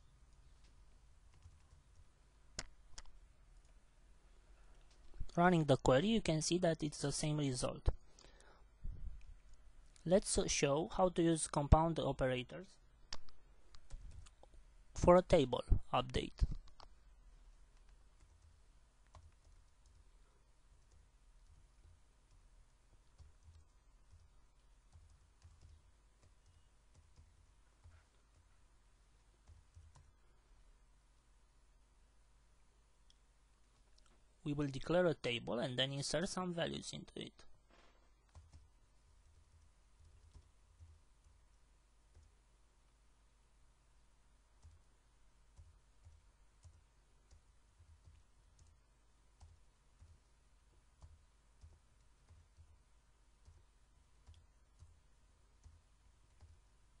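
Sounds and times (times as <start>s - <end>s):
faint keyboard typing: 0.0s - 3.9s, 4.5s - 6.4s, 12.6s - 14.6s, 15.6s - 30.4s, 33.0s - 34.9s, 37.0s - 43.0s, 44.5s - 57.0s
low steady hum: 0.0s - 57.0s.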